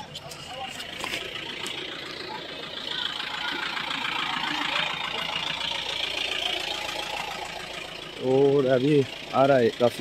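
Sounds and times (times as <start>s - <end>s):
faint voices: 0.0s - 7.4s
vehicle engine idling: 0.0s - 10.0s.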